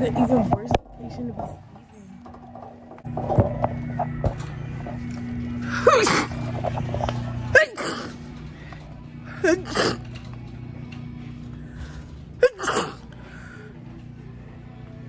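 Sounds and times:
woman sneezing: 5.8s - 6.3s, 7.5s - 8.2s, 9.4s - 10.0s, 12.4s - 13.0s.

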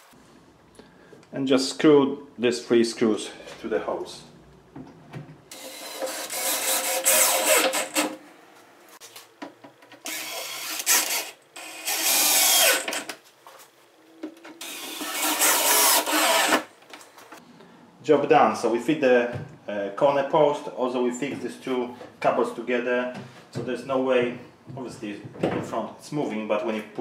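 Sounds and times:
drill driving screws into wood: 5.5s - 8.2s, 10.0s - 13.1s, 14.6s - 16.7s.

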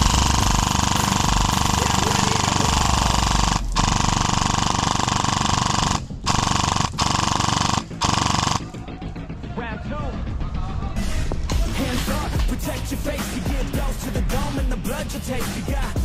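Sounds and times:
airsoft gun full-auto bursts: 0.0s - 8.8s.

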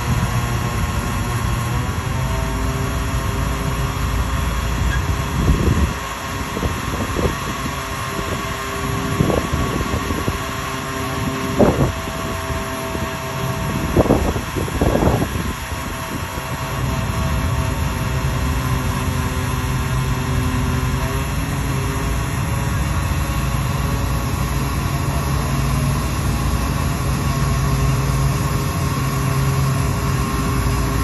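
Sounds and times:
ferry engine low drone: 0.0s - 31.0s.

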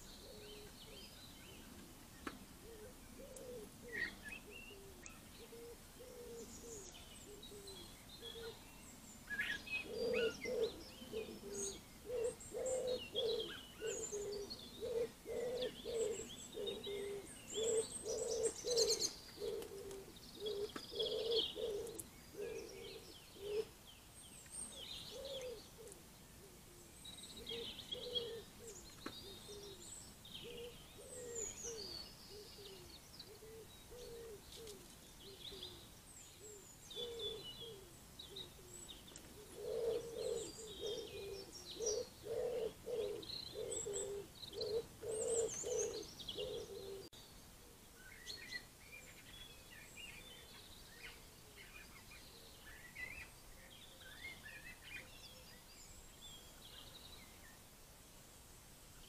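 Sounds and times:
pigeon cooing: 0.0s - 0.8s, 2.6s - 8.6s, 9.4s - 23.7s, 25.1s - 35.8s, 36.4s - 47.1s
small birds chirping: 0.0s - 57.8s.

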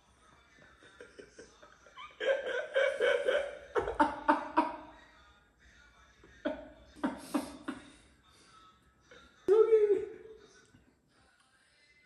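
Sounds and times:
man laughing: 0.8s - 4.9s, 6.5s - 8.0s.

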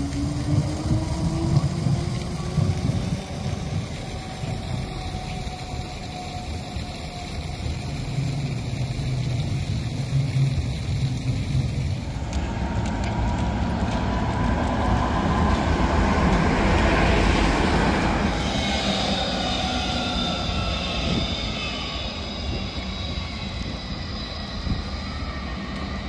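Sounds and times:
low city rumble: 0.0s - 26.0s
tram motor whine: 0.0s - 26.0s
tram wheels on rails: 0.0s - 26.0s.

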